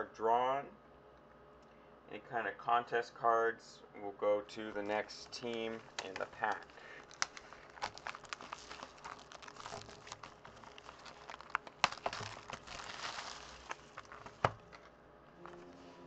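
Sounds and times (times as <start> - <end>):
plastic wrap tearing and crinkling: 4.5 - 15.9.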